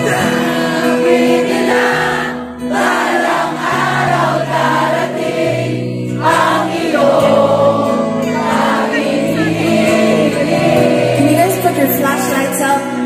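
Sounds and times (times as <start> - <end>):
crowd singing along: 0.0 - 13.0.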